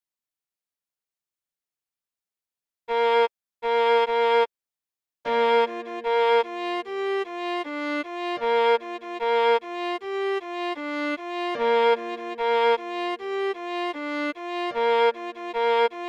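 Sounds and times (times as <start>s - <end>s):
viola playing a melody: 2.9s - 4.5s, 5.3s - 16.0s.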